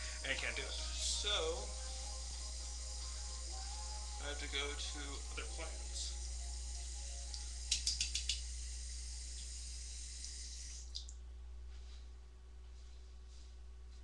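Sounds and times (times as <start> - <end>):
sink tap running: 0.0 - 11.0.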